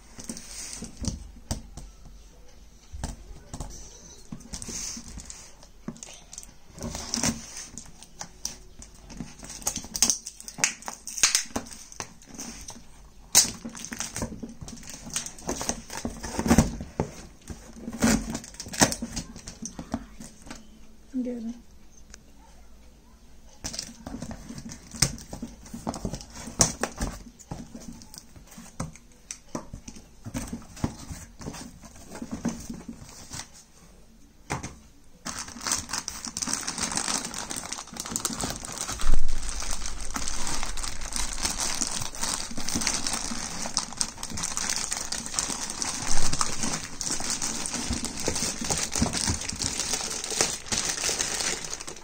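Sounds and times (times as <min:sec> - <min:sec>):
plastic wrapping crinkling: 0:03.0 - 0:20.6, 0:35.2 - 0:52.0.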